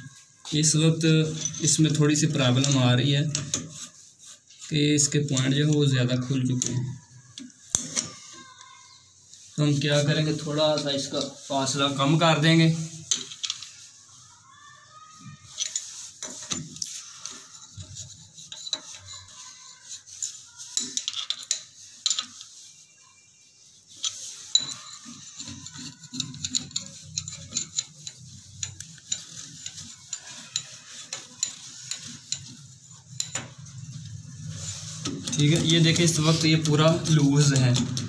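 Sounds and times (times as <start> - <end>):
metal shower mixer clinking: 0.0 - 8.2, 15.4 - 22.9, 23.8 - 38.0.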